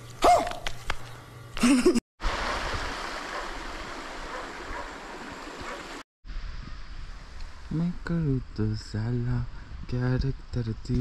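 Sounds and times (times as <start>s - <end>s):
flowing water rushing: 2.2s - 6.0s.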